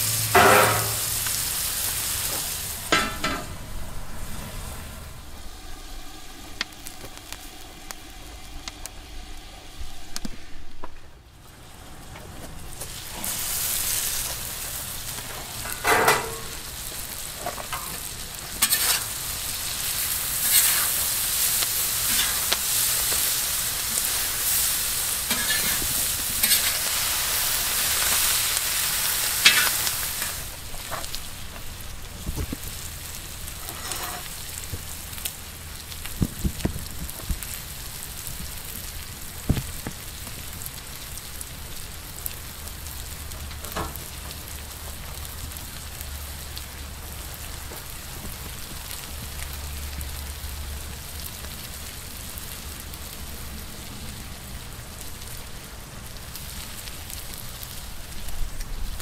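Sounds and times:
food sizzling in pan: 0.0 - 59.0
utensil scraping pan: 0.3 - 1.2, 18.6 - 19.1, 25.3 - 26.9, 33.6 - 34.3.

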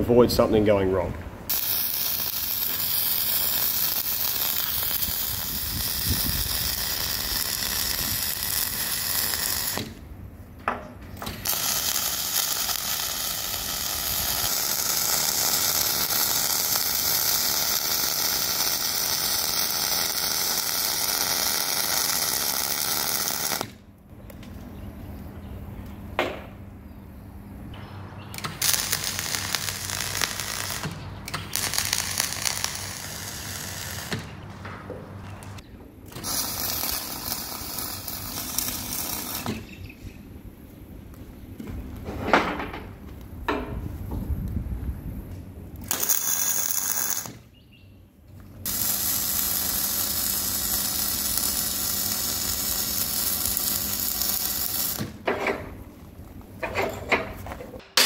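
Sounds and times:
welding arc crackling and sizzling: 1.5 - 10.0, 11.2 - 23.8, 28.4 - 34.5, 35.2 - 39.9, 45.7 - 47.5, 48.6 - 56.5.

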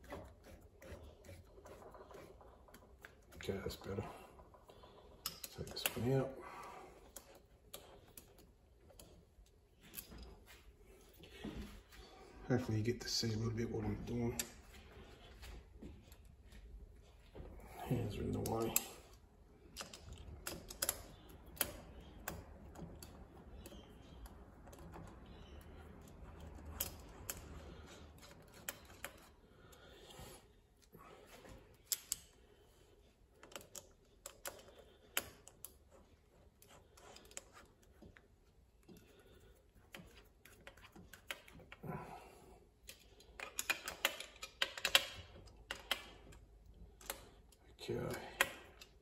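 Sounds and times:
screwdriver clicking on metal parts: 5.1 - 6.1, 18.3 - 29.4, 42.8 - 49.0.

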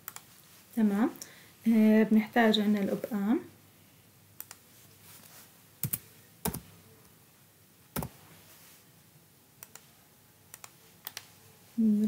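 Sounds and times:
computer mouse clicks: 0.0 - 0.3, 4.4 - 4.6, 9.6 - 9.9, 10.5 - 11.3.

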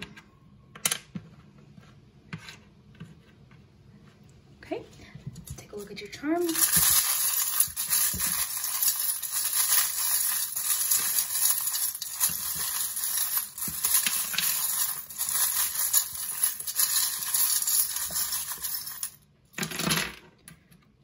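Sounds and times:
metal charms rattling in a bowl: 5.5 - 19.2.

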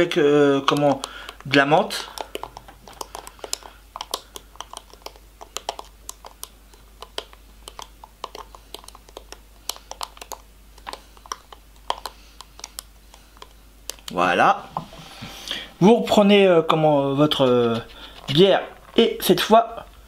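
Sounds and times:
ice cubes clicking in plastic cup: 0.7 - 13.2.

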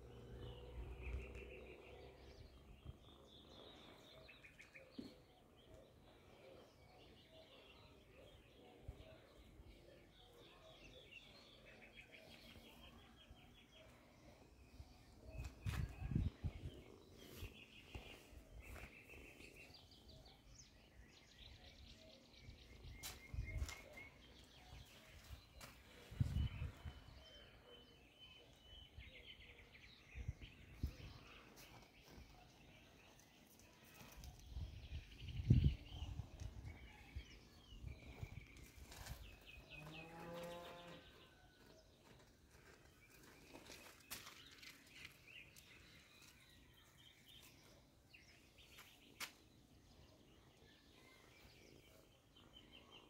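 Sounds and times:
faint birds trilling: 21.4 - 53.0.

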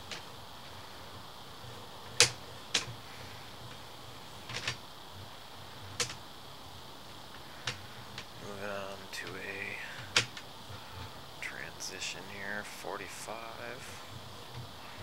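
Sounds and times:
sharp clicks and knocks: 0.0 - 0.4, 2.0 - 3.0, 4.4 - 4.8, 5.9 - 6.2, 9.2 - 11.2
faint hiss: 0.0 - 15.0.

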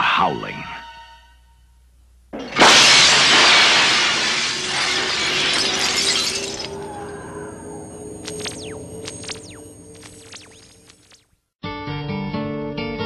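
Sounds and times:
glass shattering crash: 2.4 - 11.1.

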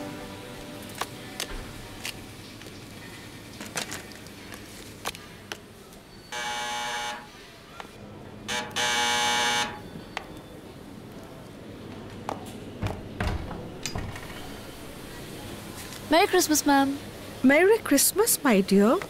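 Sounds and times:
electric doorbell buzzing: 6.4 - 7.3, 8.5 - 9.8.

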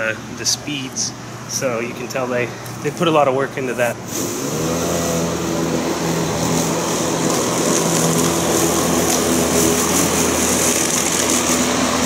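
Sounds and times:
electric lawn mower running: 4.1 - 12.0.

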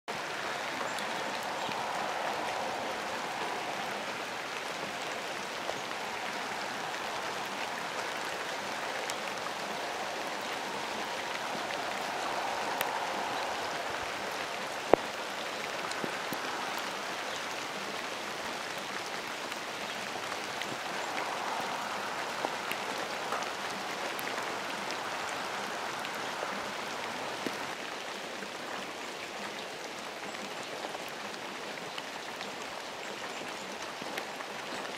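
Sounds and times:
raindrop ticks: 0.1 - 28.0
steady rain hiss: 0.1 - 34.9.

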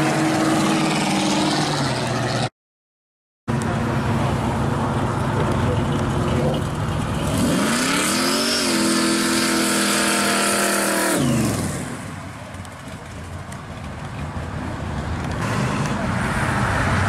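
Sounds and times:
supercharged car engine revving: 7.1 - 12.0.

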